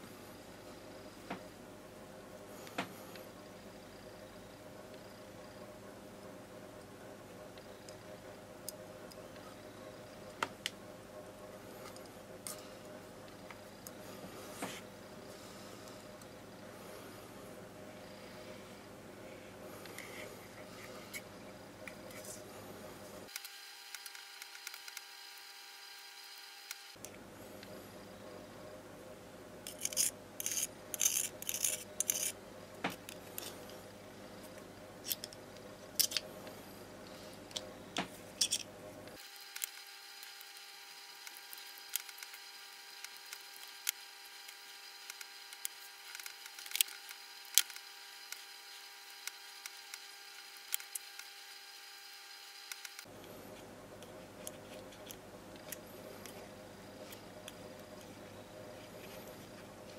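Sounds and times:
metal rod scraping lighter: 0:29.6 - 0:32.4.

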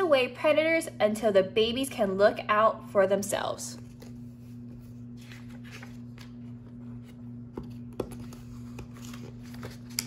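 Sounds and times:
steady low hum: 0:00.0 - 0:10.0
book pages turning: 0:03.8 - 0:10.0.

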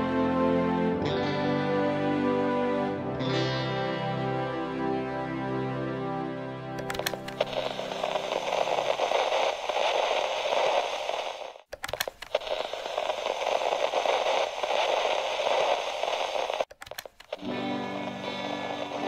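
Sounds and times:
sharp clicks: 0:06.8 - 0:18.1
crackling static hiss: 0:06.8 - 0:19.0.

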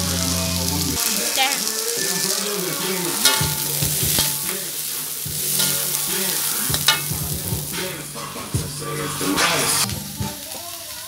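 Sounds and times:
crickets sizzling in a wok: 0:00.0 - 0:11.0
metal spatula scraping a pan: 0:03.1 - 0:09.9.

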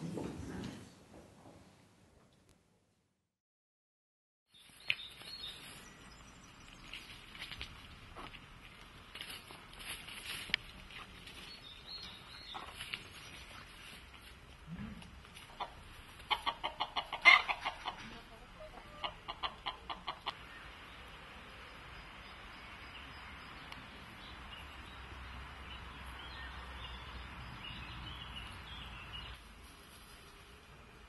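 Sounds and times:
hens clucking: 0:12.4 - 0:12.9, 0:15.3 - 0:20.5.

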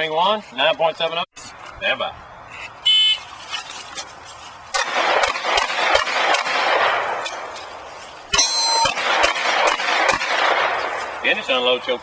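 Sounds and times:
pistol gunshots echoing: 0:04.8 - 0:07.5, 0:08.8 - 0:11.0.

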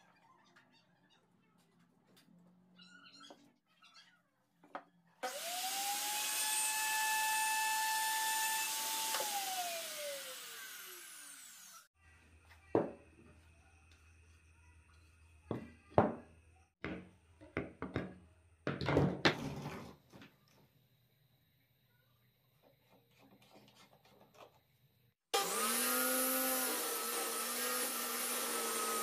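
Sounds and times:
router whining cutting wood: 0:05.2 - 0:11.9, 0:25.3 - 0:29.0
knock: 0:16.8 - 0:18.1.

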